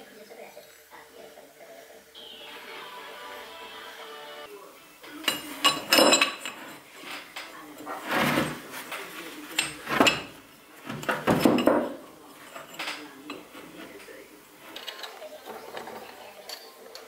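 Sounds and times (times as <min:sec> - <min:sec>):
metal parts clinking and scraping: 0:05.3 - 0:08.6, 0:09.6 - 0:14.0, 0:14.6 - 0:17.0
metal clanks: 0:05.3 - 0:08.8, 0:09.5 - 0:14.1.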